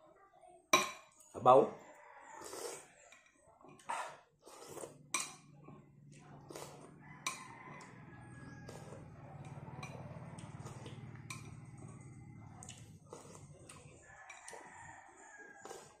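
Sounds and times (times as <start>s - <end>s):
metal spoon clinking on plates: 5.1s - 5.6s, 7.2s - 8.0s, 9.4s - 10.6s, 11.2s - 11.7s, 14.2s - 14.6s.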